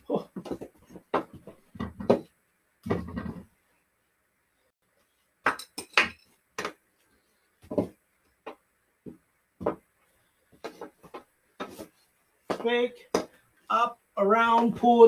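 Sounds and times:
stick and ball scuffle on carpet: 0:10.5 - 0:13.4.

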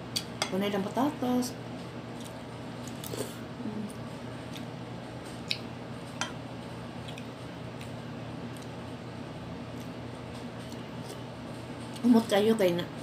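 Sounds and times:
steady low hum: 0:00.0 - 0:13.0
person chewing food: 0:02.1 - 0:03.4, 0:04.4 - 0:05.7, 0:07.0 - 0:08.9, 0:09.6 - 0:11.3.

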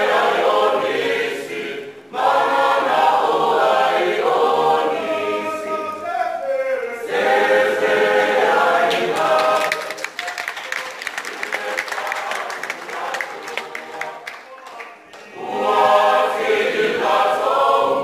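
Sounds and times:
mixed choir singing: 0:00.0 - 0:06.0, 0:06.8 - 0:10.0, 0:11.1 - 0:14.3, 0:15.2 - 0:18.0
people clapping: 0:08.6 - 0:16.6.

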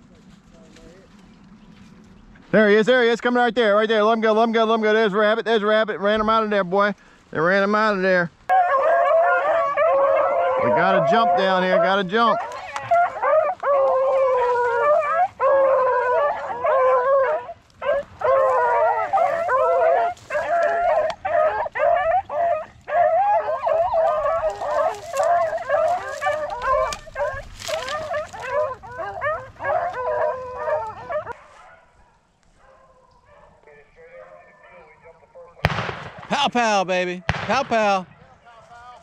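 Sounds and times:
hounds baying and howling: 0:08.5 - 0:35.6.

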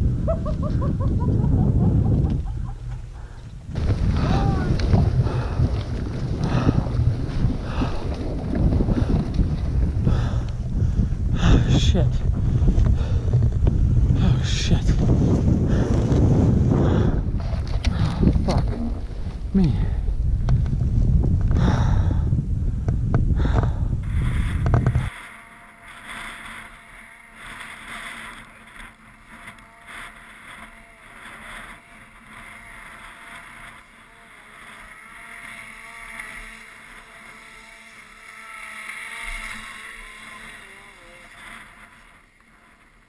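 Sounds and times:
wind buffeting microphone: 0:00.0 - 0:25.2.

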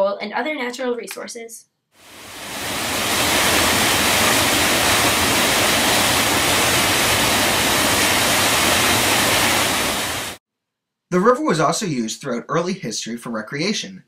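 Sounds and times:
whitewater rushing over rocks: 0:02.1 - 0:10.4.

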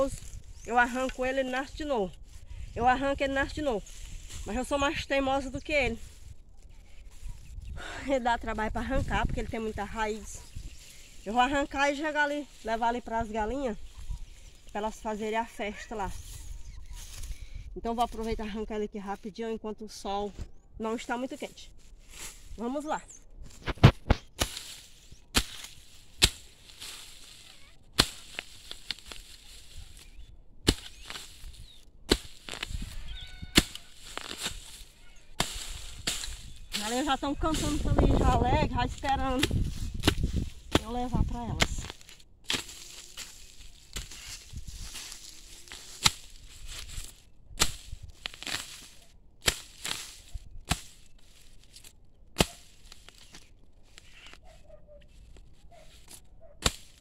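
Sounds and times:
grass and roots rustling: 0:00.0 - 0:57.0
hoe chopping into hard soil: 0:23.6 - 0:27.4, 0:28.0 - 0:29.8, 0:30.6 - 0:31.5, 0:32.1 - 0:32.8, 0:33.6 - 0:34.8, 0:35.4 - 0:36.8, 0:39.4 - 0:51.0, 0:52.4 - 0:53.4, 0:56.6 - 0:57.0.

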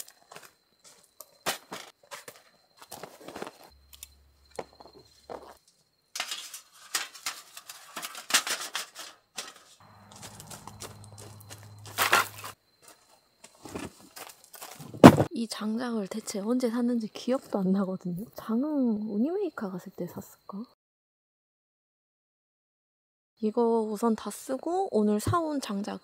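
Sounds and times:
rustling: 0:06.2 - 0:12.6
low hum: 0:09.8 - 0:12.5
footsteps crunching on gravel: 0:09.8 - 0:15.3.

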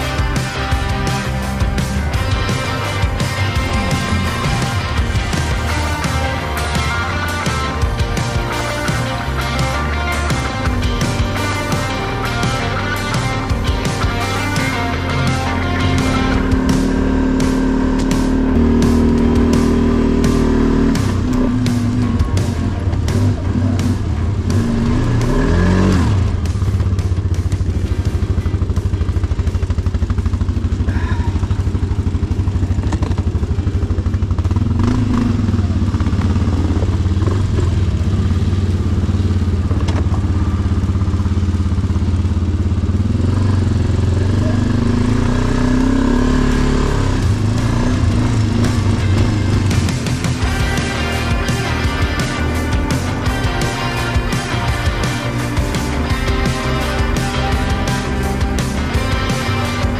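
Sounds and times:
quad bike engine revving: 0:00.0 - 0:59.9.

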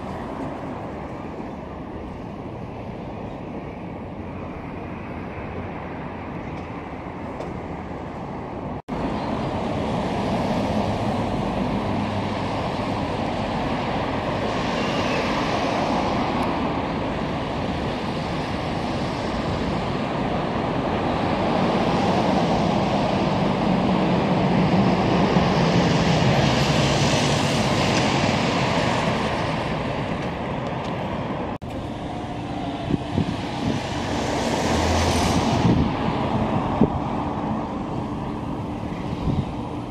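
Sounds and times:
cars passing: 0:00.0 - 0:39.9.

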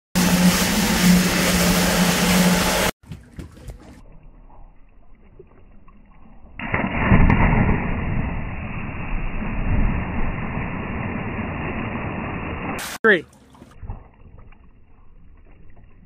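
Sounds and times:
boat motor humming: 0:00.1 - 0:04.1
muffled splash into water: 0:06.6 - 0:11.0.

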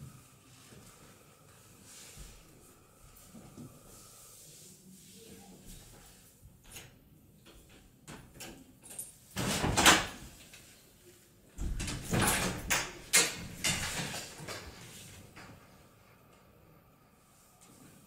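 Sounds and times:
door unlocking and opening: 0:11.6 - 0:14.6.

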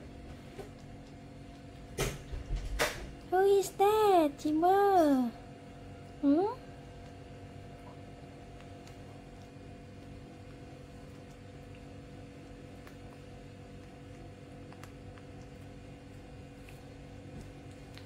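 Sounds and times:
low electrical hum: 0:00.0 - 0:18.0.

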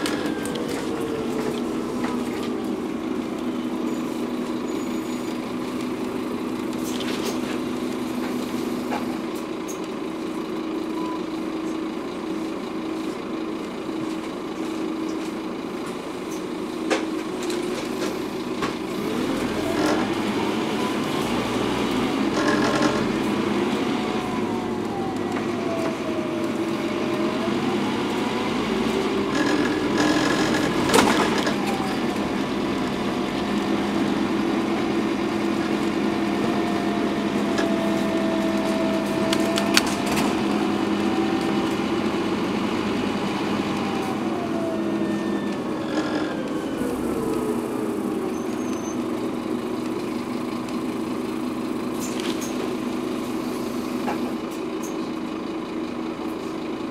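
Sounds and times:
bus engine drone with whine: 0:00.0 - 0:56.9.

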